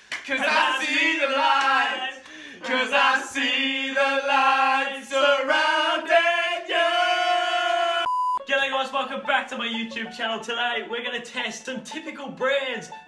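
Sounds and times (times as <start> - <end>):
young men singing together: 0.3 - 8.1.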